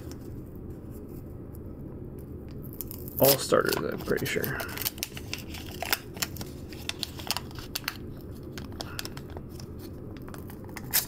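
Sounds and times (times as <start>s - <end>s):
wrapper crinkling: 2.7s - 11.0s.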